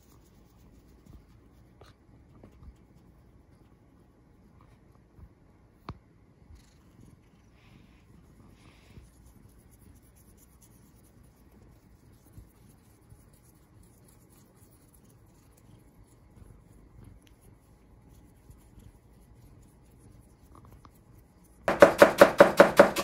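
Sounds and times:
cat purring: 0:06.4 - 0:10.1.

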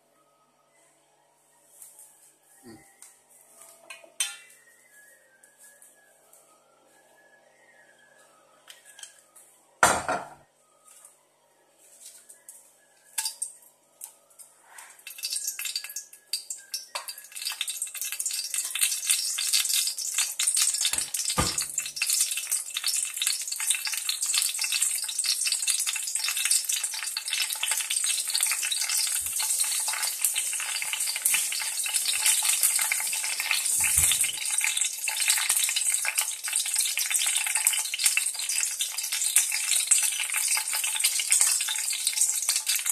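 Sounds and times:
clunk on pan: 0:09.8 - 0:10.4
hot oil sizzling: 0:14.9 - 0:42.9.

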